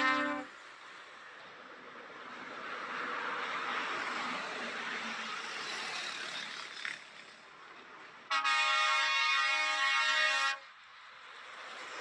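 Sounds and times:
truck air horn blast: 0.0 - 0.6, 8.3 - 10.7
passing highway traffic: 0.0 - 12.0.

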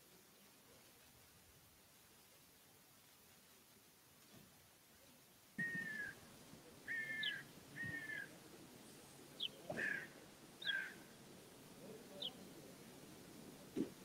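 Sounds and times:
bird chirps: 5.6 - 6.2, 6.8 - 8.3, 8.9 - 11.0, 12.1 - 12.4
bird calling: 5.6 - 11.2, 11.8 - 12.5.

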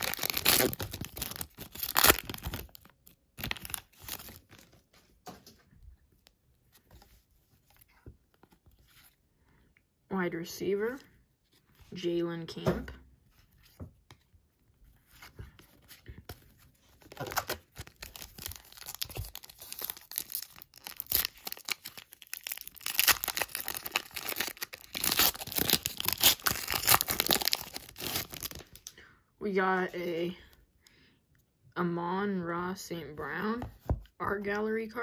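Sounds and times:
wrapper being torn and crinkled: 0.0 - 4.6, 17.0 - 28.9.

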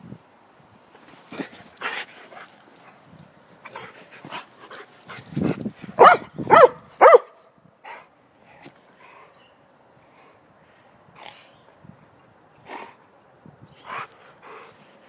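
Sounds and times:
dog barking: 6.0 - 7.4.

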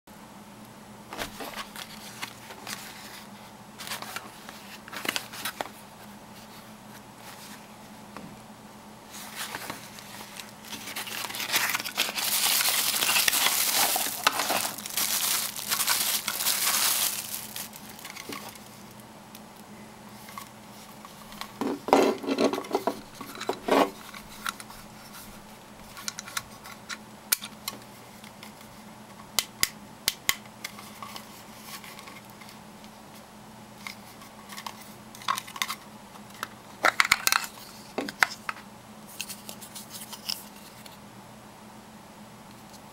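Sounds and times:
packaging crinkling and rustling: 1.2 - 5.8, 9.1 - 19.0, 20.2 - 27.6.

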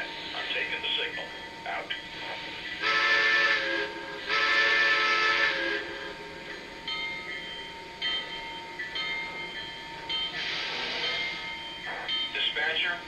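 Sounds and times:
loud steam hiss: 0.0 - 6.8, 10.2 - 13.0.

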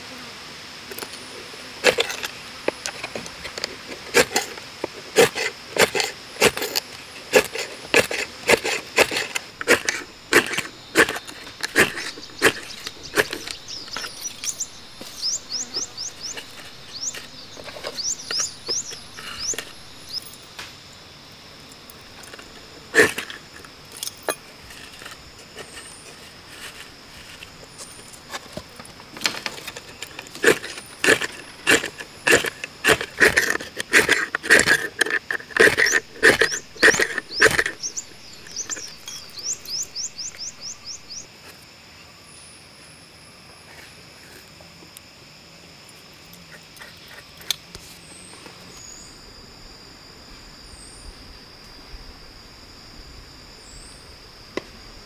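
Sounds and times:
knife scraping bamboo: 3.9 - 20.2, 29.3 - 41.0.

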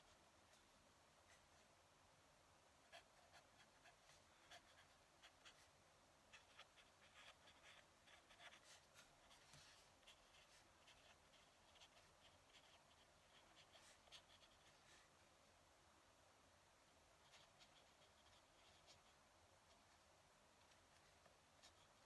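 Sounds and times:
pen nib scratching on paper: 2.9 - 5.7, 6.3 - 15.0, 17.2 - 20.0, 20.6 - 22.0.

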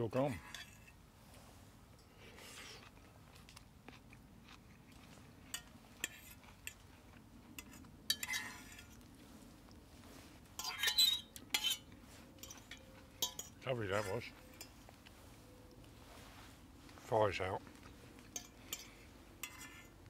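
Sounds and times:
cutlery clinking and scraping on a plate: 0.4 - 0.9, 5.5 - 6.8, 7.6 - 9.0, 10.6 - 14.8, 18.2 - 19.9
chewing: 2.0 - 9.8, 11.5 - 16.1.

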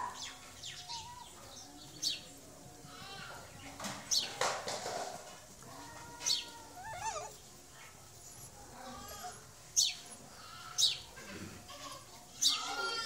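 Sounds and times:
puppy whimpering: 5.7 - 7.4, 8.2 - 10.4.

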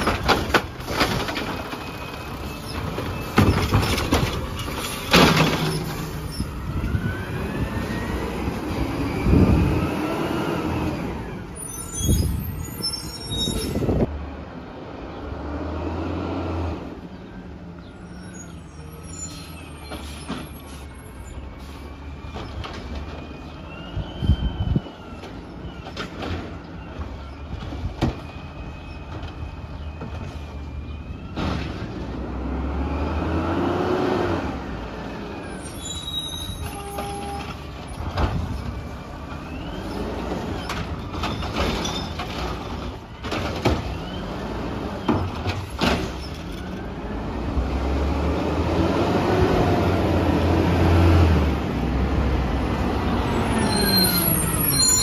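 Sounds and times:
cart knocks and clanks: 0.0 - 6.2, 40.6 - 44.0, 45.0 - 46.8
truck hydraulics: 18.0 - 22.6, 53.3 - 55.0.

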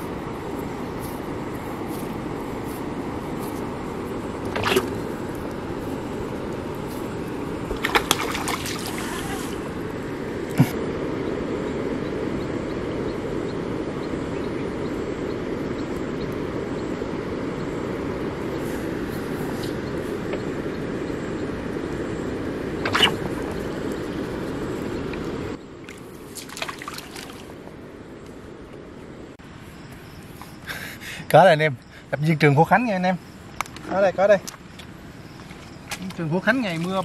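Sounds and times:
wind and water noise: 0.0 - 37.0
fish splashing at surface: 4.5 - 5.1, 7.7 - 9.6, 22.8 - 24.2, 26.3 - 27.5.

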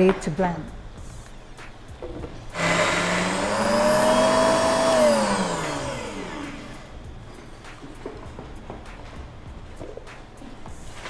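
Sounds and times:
blender motor whining: 2.5 - 7.0.

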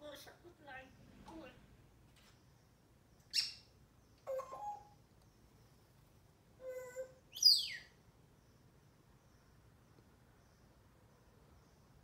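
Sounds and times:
parrot calling: 3.3 - 5.0, 6.6 - 8.0.

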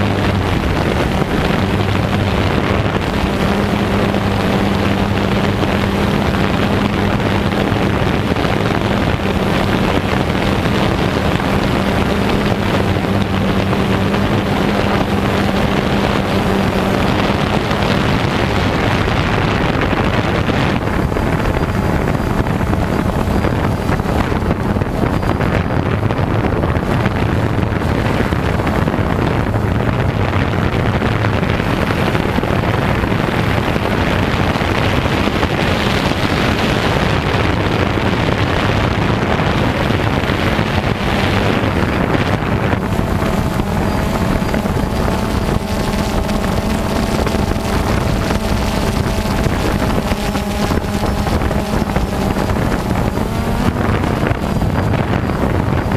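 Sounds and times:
drone propellers buzzing: 0.0 - 55.9
wind on microphone: 0.0 - 55.9.

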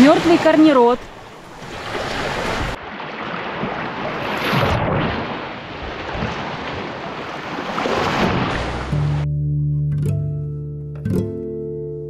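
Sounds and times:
waves washing onto shore: 0.0 - 9.2.

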